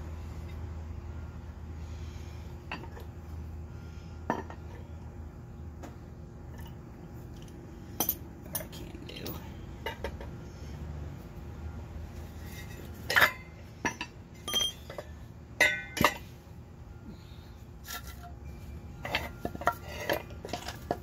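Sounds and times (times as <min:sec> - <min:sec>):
metal tools clinking and clanking: 0:12.4 - 0:16.3, 0:19.0 - 0:21.0.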